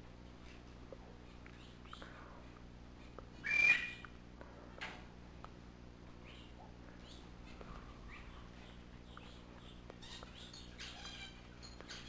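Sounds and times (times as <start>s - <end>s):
faint low hum: 0.0s - 12.0s
birds chirping: 3.0s - 4.2s, 6.2s - 12.0s
harsh buzzy bird calls: 3.0s - 4.2s, 6.2s - 12.0s.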